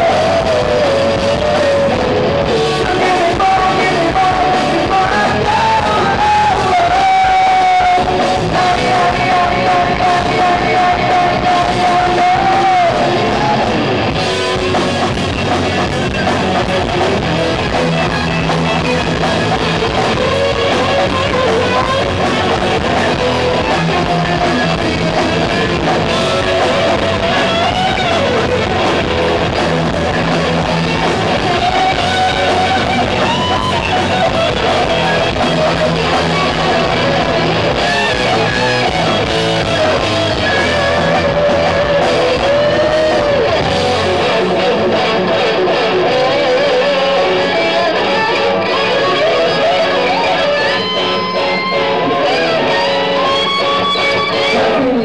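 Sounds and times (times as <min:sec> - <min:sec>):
man singing: 0:00.0 - 0:13.9, 0:37.8 - 0:50.7
drum kit: 0:00.0 - 0:55.0
electric guitars: 0:00.0 - 0:55.0.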